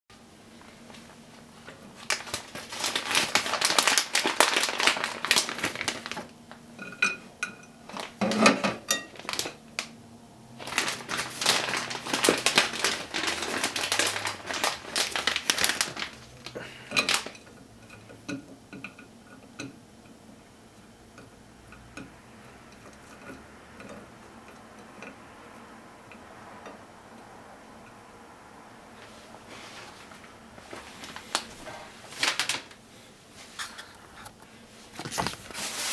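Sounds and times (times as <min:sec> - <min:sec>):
plastic bag crinkling: 0:01.6 - 0:06.6, 0:07.9 - 0:17.5, 0:30.0 - 0:32.8.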